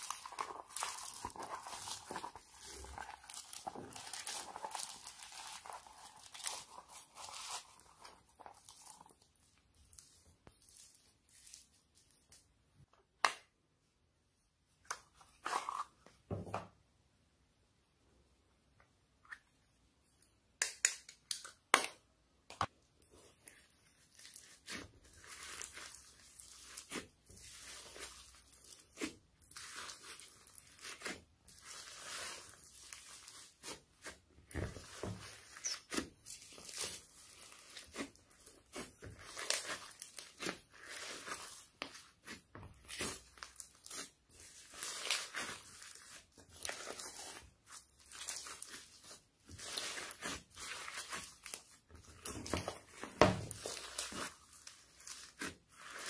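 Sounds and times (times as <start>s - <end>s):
foam beads crackling: 0.0s - 9.3s
wet slime squelches: 0.0s - 13.2s, 22.6s - 56.0s.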